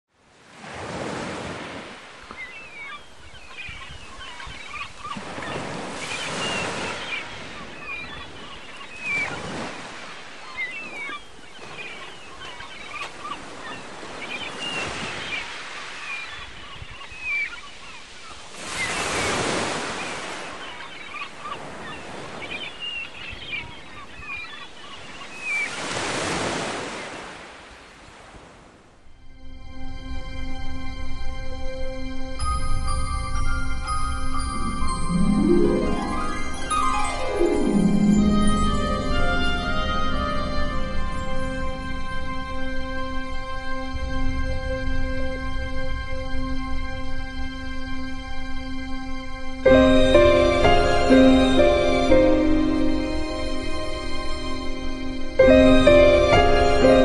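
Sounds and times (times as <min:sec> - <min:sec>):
surf washing onto beach: 0:00.4 - 0:02.4, 0:05.0 - 0:08.0
birds chirping: 0:02.2 - 0:27.2, 0:32.4 - 0:44.1, 0:49.7 - 0:57.0.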